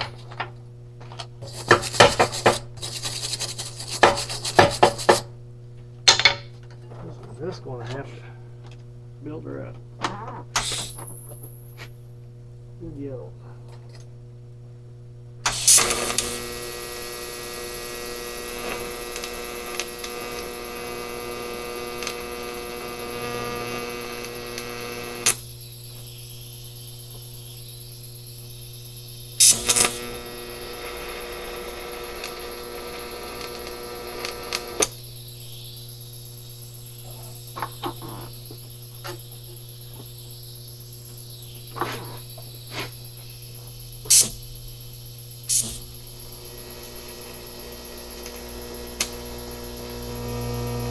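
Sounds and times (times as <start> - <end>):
welder electrical hum: 0.0 - 50.9
welding arc buzzing: 1.0 - 5.4, 10.2 - 12.0, 15.4 - 50.9
welding arc crackle: 1.4 - 5.3, 10.5 - 11.3, 15.4 - 50.9
small clicks: 49.0 - 49.2.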